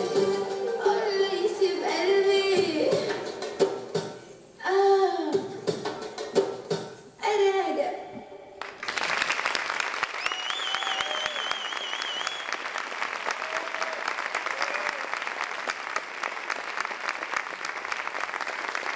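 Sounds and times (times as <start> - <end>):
audience applauding: 8.6 - 18.9.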